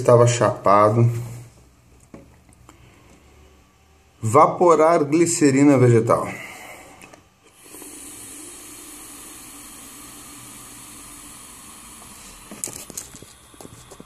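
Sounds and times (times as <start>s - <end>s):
e-cigarette vapour hiss: 6.9s - 14.0s.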